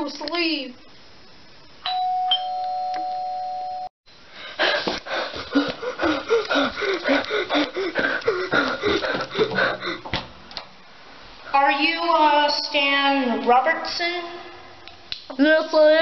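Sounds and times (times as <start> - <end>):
two-tone doorbell chime: 1.8 - 3.9
breathy panting: 4.3 - 10.2
quick footsteps: 4.6 - 10.4.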